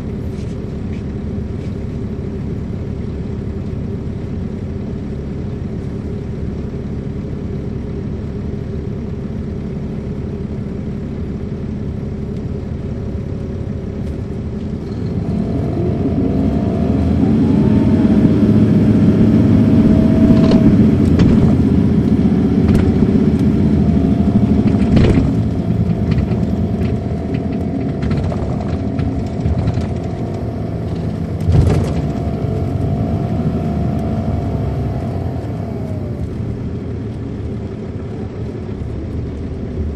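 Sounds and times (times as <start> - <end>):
bus diesel engine running: 0.0 - 39.9
steady whine: 0.0 - 39.9
interior rattles: 22.7 - 32.6.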